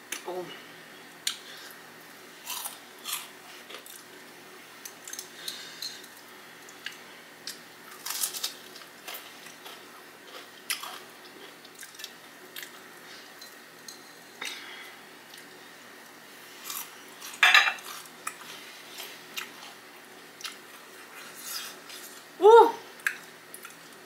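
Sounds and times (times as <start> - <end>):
crunchy chewing: 2.4 - 4.2, 4.8 - 12.8, 16.6 - 22.3.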